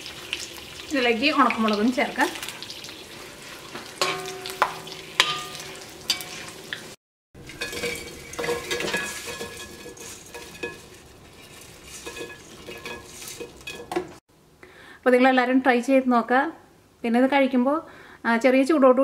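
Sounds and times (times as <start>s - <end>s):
chillies sizzling in hot oil: 0.0s - 14.2s
metal spoon scraping a pan: 2.4s - 6.8s, 7.4s - 14.2s.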